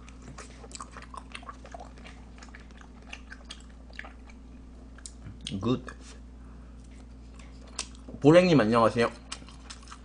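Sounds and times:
wet mouth chewing clicks: 0.0 - 5.6
steady low hum: 0.0 - 10.0.

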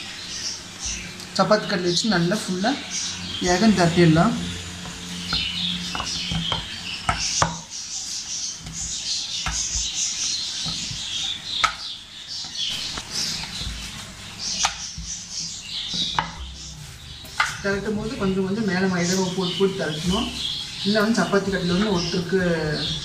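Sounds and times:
birds chirping: 0.0 - 23.0
rolling pin rolling dough: 3.4 - 23.0
rolling pin knocking board: 15.9 - 16.5.

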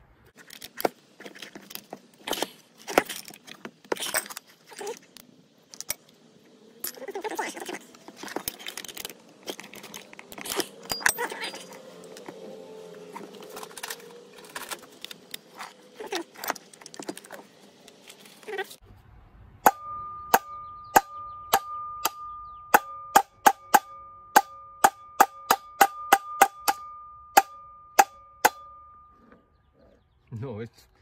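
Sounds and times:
tools clattering and clicking: 0.4 - 6.2, 6.8 - 12.4, 13.1 - 18.4
hammer striking steel shaft: 19.6 - 29.1.

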